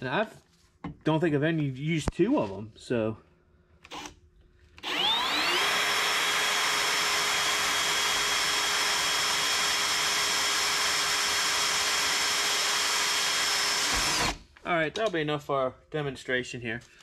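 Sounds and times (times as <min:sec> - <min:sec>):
electric drill whining: 0:03.8 - 0:04.2, 0:04.8 - 0:14.5.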